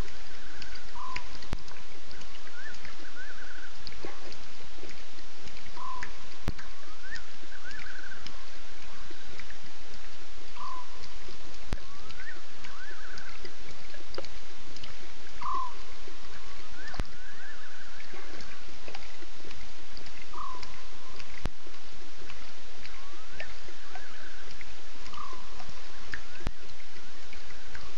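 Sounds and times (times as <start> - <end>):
steady hiss: 0.0 - 27.9
animal calling with warbling trill: 0.4 - 1.4, 5.8 - 9.2, 10.6 - 11.1, 11.8 - 13.4, 15.4 - 18.5, 20.3 - 21.2, 22.9 - 26.0.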